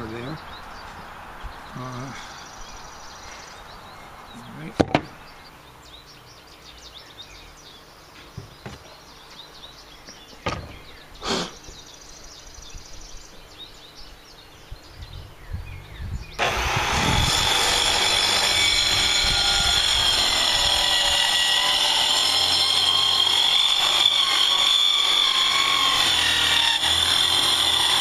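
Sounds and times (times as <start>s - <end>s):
birds chirping: 0.0s - 28.0s
sharp knocks: 4.8s - 5.1s, 10.4s - 10.8s
miter saw motor running: 16.4s - 28.0s.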